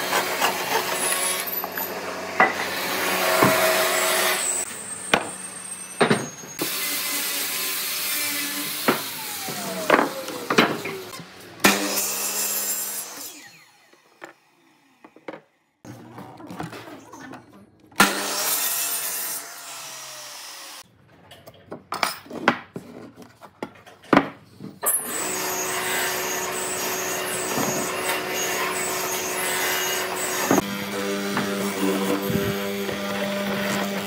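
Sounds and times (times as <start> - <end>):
miter saw cutting wood: 0.0 - 5.4, 6.6 - 15.2, 18.0 - 20.8, 24.8 - 34.0.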